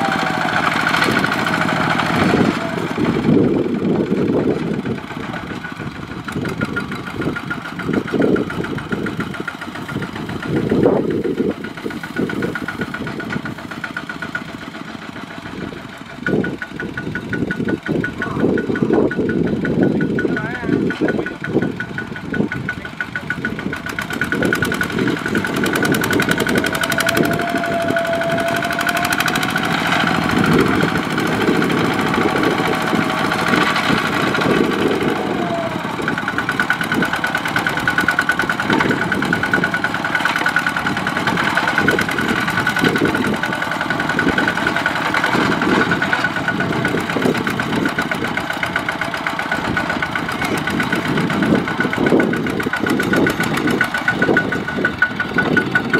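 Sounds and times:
diesel engine chugging: 0:00.0 - 0:55.9
wheels churning through mud: 0:00.0 - 0:55.9.

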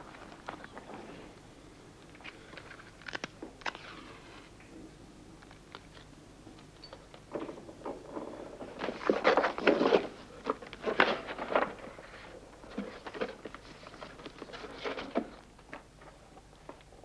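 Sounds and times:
paper and photos rustling: 0:07.9 - 0:17.0.

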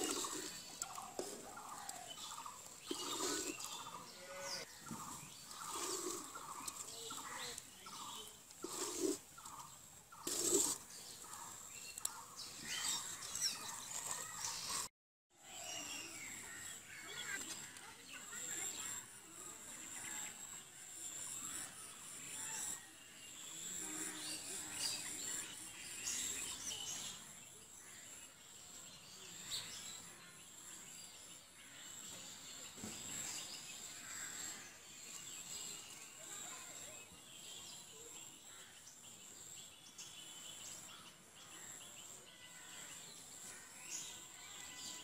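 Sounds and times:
birds chirping: 0:00.0 - 0:14.9.

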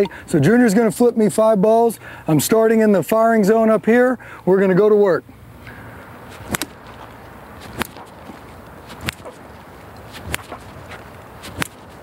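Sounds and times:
bat cracking balls: 0:05.7 - 0:12.0.

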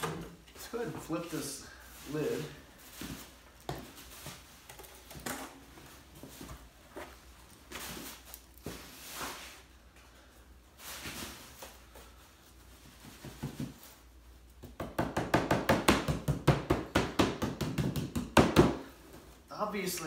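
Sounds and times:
hands knocking on mold: 0:14.6 - 0:18.8.

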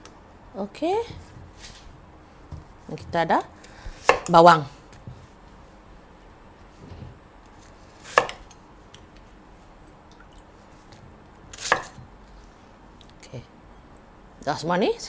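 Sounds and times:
knife chopping on wooden board: 0:08.1 - 0:08.5, 0:11.6 - 0:12.0.

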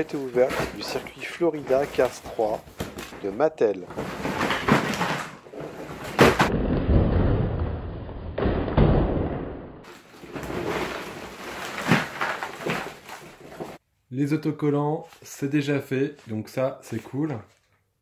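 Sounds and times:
cardboard and plastic rustling: 0:00.0 - 0:06.5, 0:09.9 - 0:13.8.

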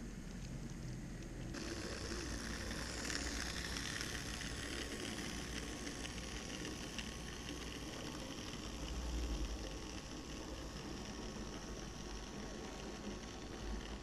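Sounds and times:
model train rushing past: 0:01.6 - 0:14.0.

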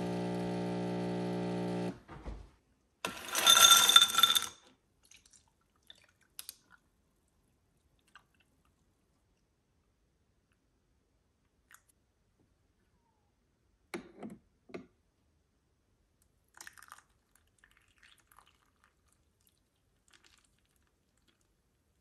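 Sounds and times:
objects clattering: 0:03.1 - 0:04.6.

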